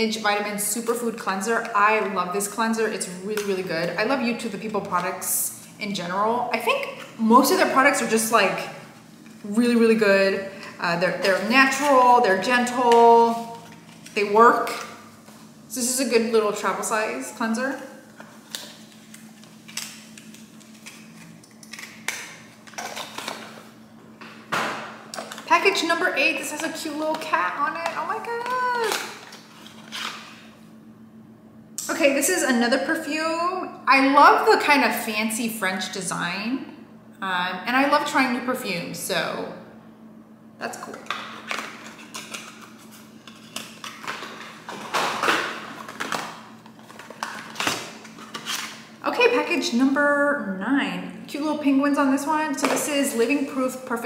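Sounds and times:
steady low hum: 0:00.0 - 0:54.0
packaging rustling: 0:18.2 - 0:23.7, 0:28.3 - 0:30.4, 0:41.0 - 0:48.9.

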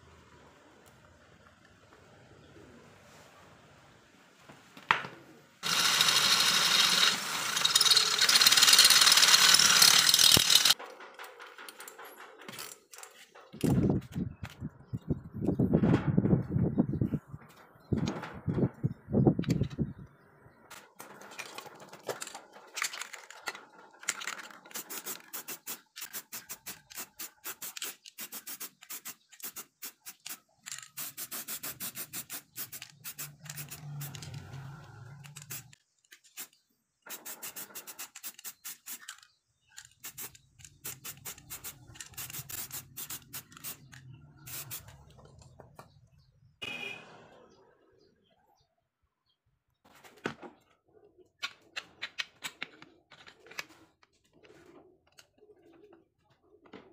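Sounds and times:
metal parts clinking on cardboard: 0:05.6 - 0:13.8, 0:20.7 - 0:34.3.

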